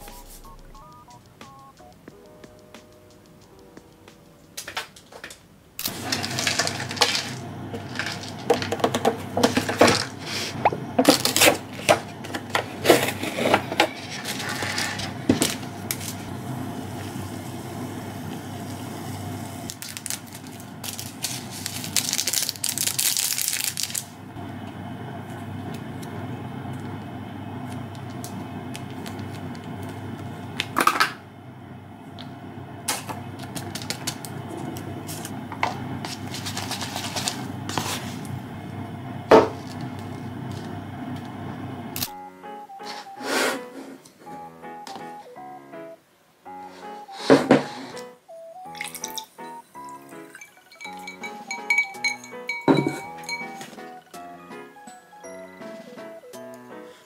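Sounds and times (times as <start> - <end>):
dried flakes shaken from bag: 5.8 - 11.9, 19.7 - 24.2, 36.0 - 38.2
packaging crinkling: 5.8 - 16.3, 19.6 - 24.3, 27.7 - 30.9, 32.9 - 35.4, 36.0 - 38.2
hot water pouring into cup: 5.8 - 31.3, 32.0 - 42.0, 48.7 - 53.8.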